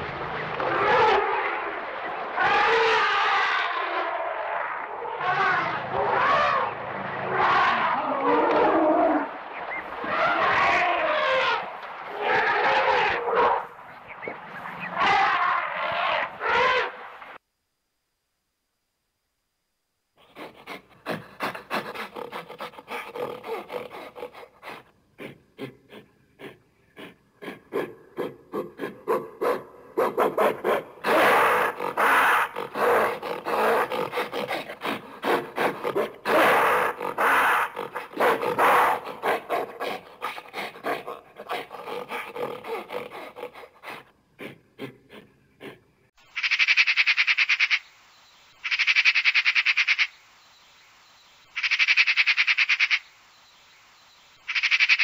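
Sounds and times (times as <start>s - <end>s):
pulsed animal calls: 20.2s - 29.3s, 30.0s - 45.8s
rapid rasping croaks: 20.2s - 47.8s.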